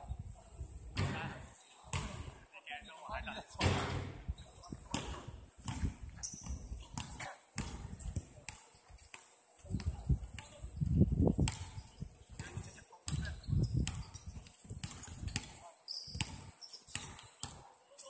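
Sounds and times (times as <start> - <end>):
wind buffeting microphone: 0.0 - 2.4, 3.6 - 8.4, 9.6 - 15.4
ball being kicked: 1.0 - 2.4.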